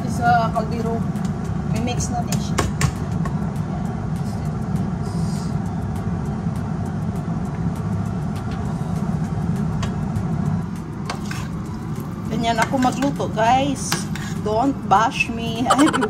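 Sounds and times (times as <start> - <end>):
low rumble of motor or fan: 0.0 - 16.0.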